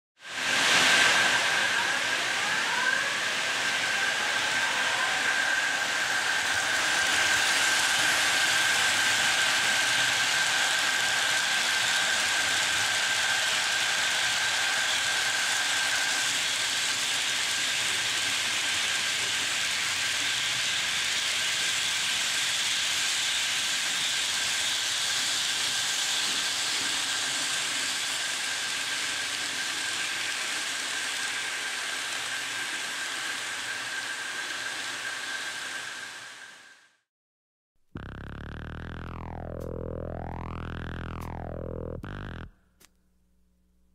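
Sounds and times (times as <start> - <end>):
model train wheels on rails: 3.2 - 36.4
thin high whine: 38.0 - 42.8.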